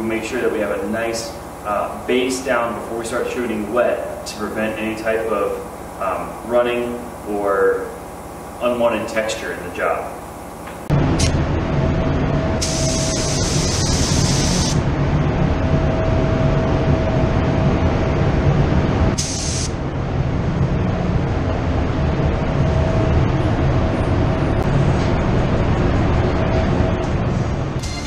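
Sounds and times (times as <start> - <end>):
steady low drone: 0.0 - 28.0
spray gun air hiss: 12.6 - 14.8, 19.2 - 19.8.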